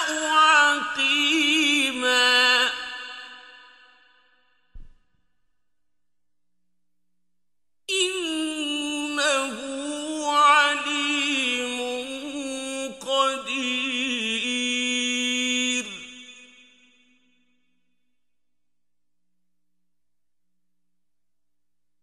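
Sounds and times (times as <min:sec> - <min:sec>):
man chanting: 0:00.0 - 0:03.8, 0:08.0 - 0:16.4.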